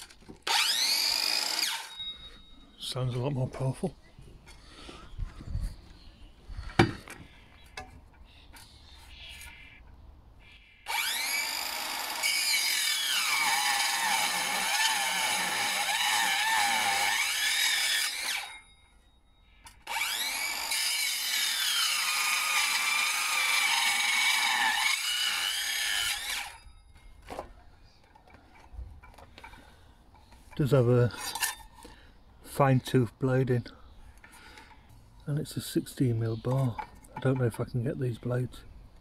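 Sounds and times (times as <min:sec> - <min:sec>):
circular saw cutting wood: 0:00.0 - 0:02.5, 0:10.8 - 0:18.7, 0:19.8 - 0:26.7.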